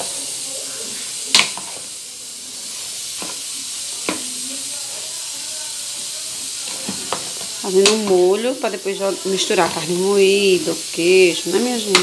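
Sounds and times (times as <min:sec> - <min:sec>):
pasta sizzling in a pan: 0:00.0 - 0:12.0
wooden spoon knocking on pan: 0:04.0 - 0:04.3, 0:06.7 - 0:08.3.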